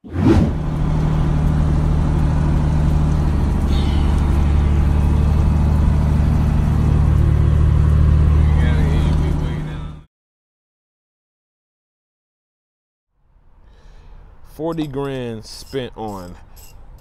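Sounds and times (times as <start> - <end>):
diesel truck engine drone: 0.0 - 10.1.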